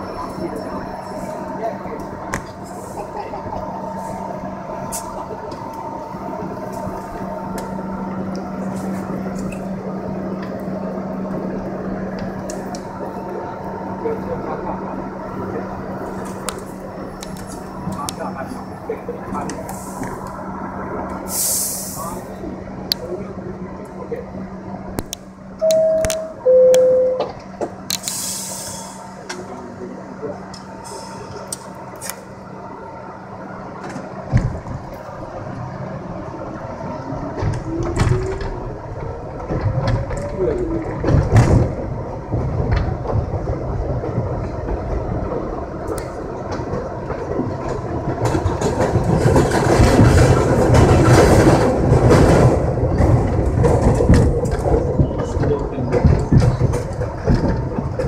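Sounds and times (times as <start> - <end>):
subway car equipment humming: 0.0 - 58.0
air hiss: 21.3 - 22.2, 28.0 - 29.0.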